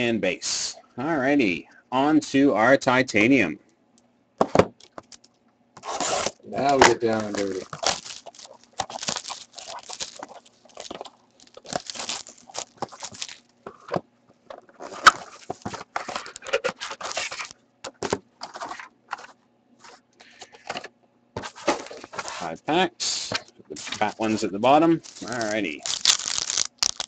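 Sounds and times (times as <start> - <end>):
plastic shrink wrap crinkling: 4.8 - 13.6, 14.8 - 17.6, 23.8 - 27.0
cardboard box opening: 5.8 - 13.4
foil packs rustling: 5.8 - 13.9, 14.7 - 17.6, 21.4 - 22.5, 23.7 - 27.0.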